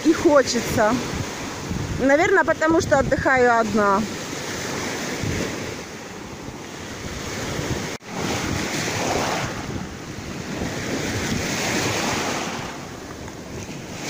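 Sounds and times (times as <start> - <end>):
waves breaking on sand: 0.0 - 14.0
wind buffeting microphone: 0.0 - 14.0.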